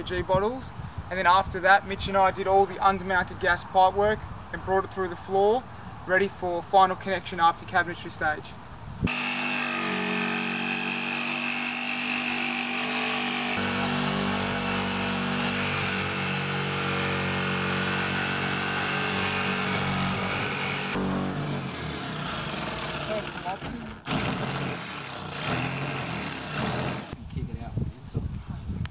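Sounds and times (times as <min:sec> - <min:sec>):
jigsaw cutting sheet metal: 0:09.1 - 0:27.2.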